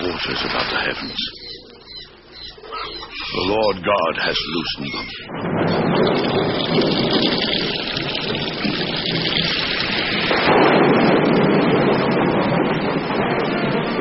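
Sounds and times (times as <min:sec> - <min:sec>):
heavy rain downpour: 0:05.4 - 0:14.0.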